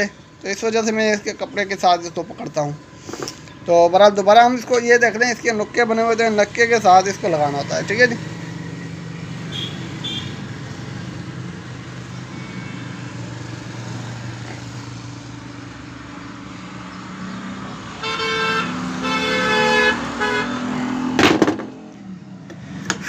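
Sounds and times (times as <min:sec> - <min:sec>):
road traffic passing: 0:00.0 - 0:23.0
vehicle horn: 0:09.5 - 0:10.4, 0:12.2 - 0:13.6, 0:18.0 - 0:21.0.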